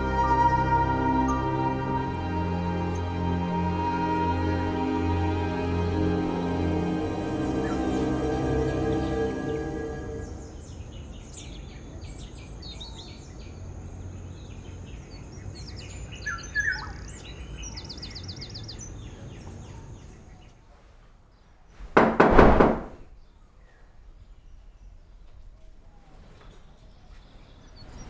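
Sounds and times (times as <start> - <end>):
burst of thuds: 21.8 - 23.1.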